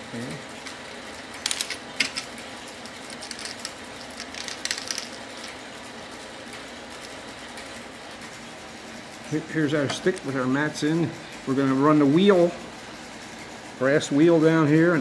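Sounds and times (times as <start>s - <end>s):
metal matrices clicking: 2.9s - 5.6s.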